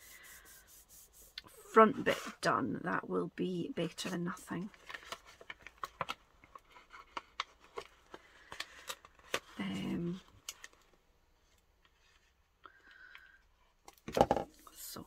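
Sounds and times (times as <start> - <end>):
paper rustling: 4.8 - 12.4.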